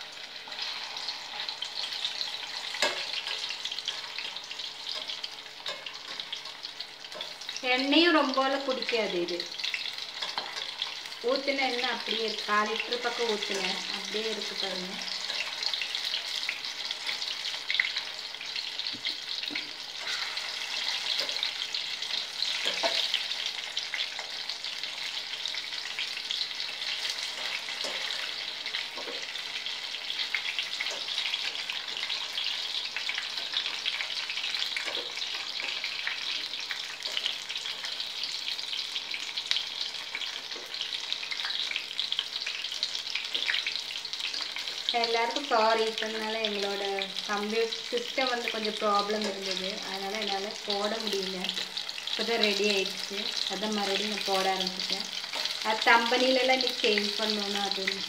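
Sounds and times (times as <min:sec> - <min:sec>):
food deep-frying in hot oil: 0:00.0 - 0:58.0.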